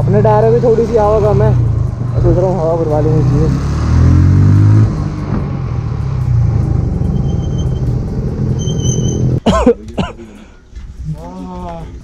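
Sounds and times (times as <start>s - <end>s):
wind and road noise: 0.0s - 9.4s.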